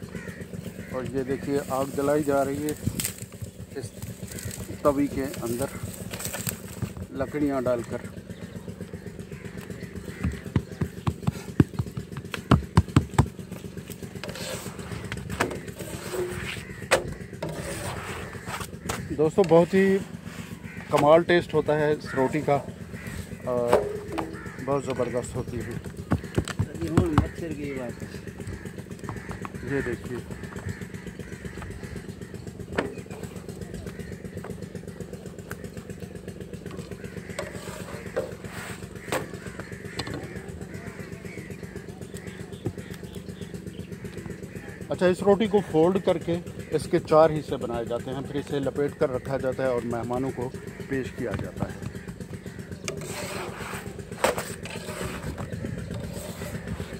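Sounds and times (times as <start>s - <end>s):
small engine droning: 0.0s - 56.9s
soft scraping: 14.2s - 15.1s, 15.8s - 16.6s, 17.4s - 18.7s.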